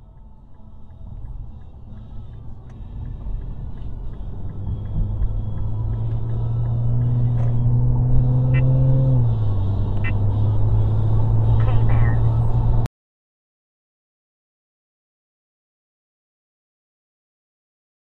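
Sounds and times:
car engine hum: 0.0s - 12.9s
road noise inside car: 0.0s - 12.9s.

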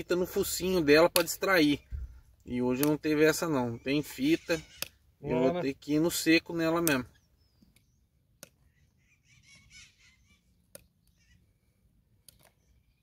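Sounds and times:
hoof-trimming tool clicks: 1.0s - 1.4s, 2.8s - 3.0s, 4.7s - 5.0s, 6.7s - 8.6s, 12.2s - 12.6s
faint bird chirping: 3.2s - 5.6s, 7.0s - 13.0s.

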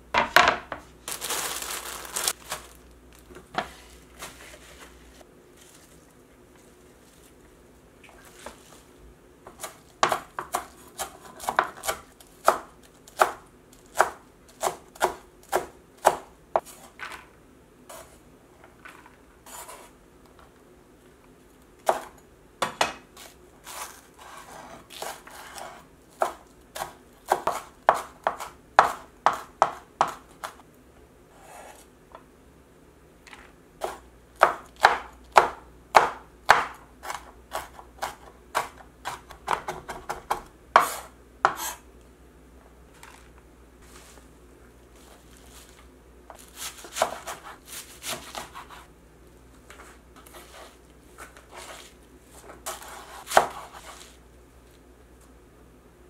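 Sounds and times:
knife chopping on wooden board: 9.5s - 16.7s, 26.2s - 30.6s, 33.8s - 41.8s, 46.3s - 48.8s, 52.7s - 54.0s.

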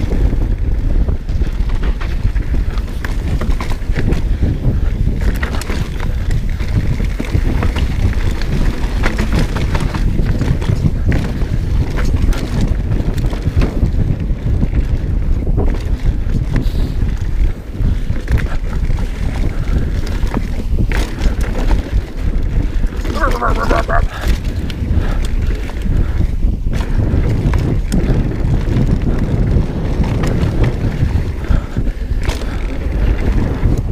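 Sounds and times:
mountain bike rattling on trail: 0.0s - 33.9s
wind buffeting microphone: 0.0s - 33.9s.

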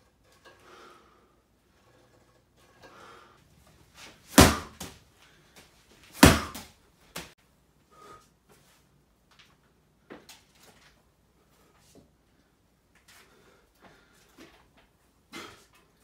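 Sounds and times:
slam ball thudding on brick floor: 4.3s - 5.0s, 6.2s - 7.3s.

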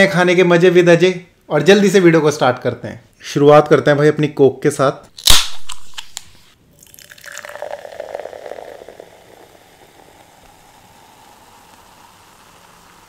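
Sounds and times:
can opening with snap and hiss: 5.2s - 6.6s, 10.1s - 13.0s
carbonation fizzing: 6.7s - 13.0s
soda pouring into a glass: 6.7s - 13.0s.

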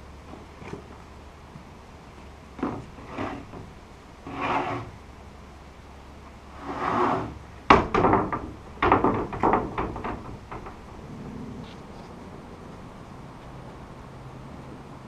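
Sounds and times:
boards clattering onto stack: 2.6s - 3.7s, 6.9s - 10.9s
wooden boards scraping together: 2.6s - 5.0s, 6.6s - 11.8s.

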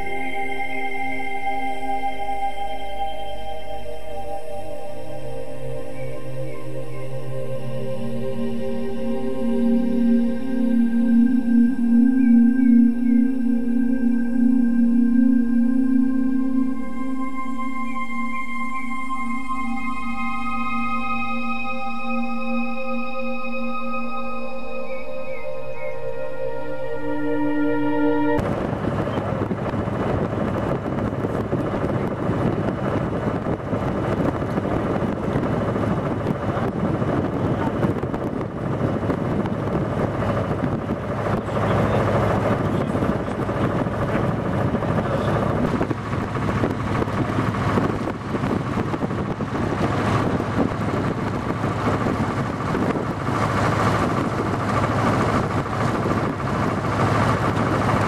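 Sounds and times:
boat engine humming: 0.0s - 58.0s
rush of wind and water: 28.4s - 58.0s
wind buffeting microphone: 28.4s - 58.0s.

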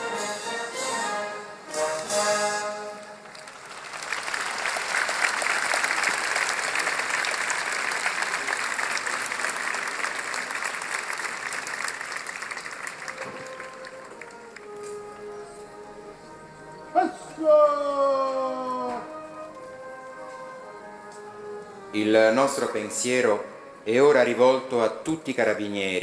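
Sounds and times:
large crowd applauding: 3.2s - 14.7s
band playing sustained chord: 13.0s - 17.4s.

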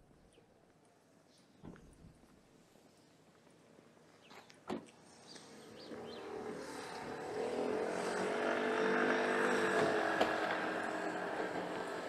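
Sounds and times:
vehicle engine passing: 5.4s - 12.0s.

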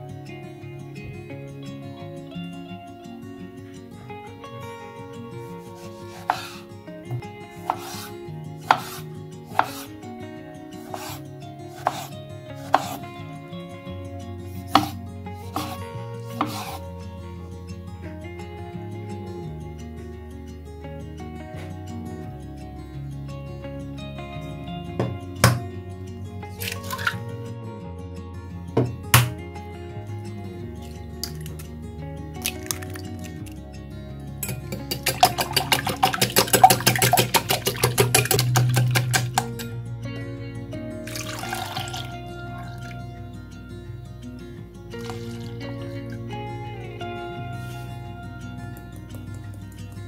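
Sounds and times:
soft background music: 0.0s - 50.0s
knife slicing tomatoes: 5.8s - 6.6s, 7.6s - 9.9s, 10.8s - 13.0s, 14.7s - 16.8s
eggshell crackling: 30.9s - 31.7s, 32.4s - 33.6s, 34.4s - 39.7s, 41.1s - 42.9s
egg cracking on surface: 32.4s - 33.6s, 34.4s - 39.7s.

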